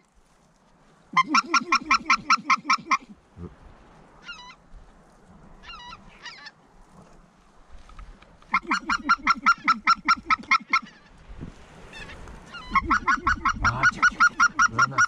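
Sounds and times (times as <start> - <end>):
goose honking: 1.1 - 3.2, 5.6 - 6.5, 8.5 - 11.1, 11.9 - 15.0.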